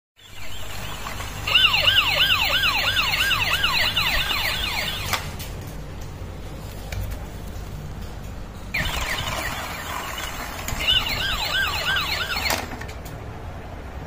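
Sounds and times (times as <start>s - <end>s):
toy police siren yelping: 0.3s - 5.2s, 8.8s - 12.7s.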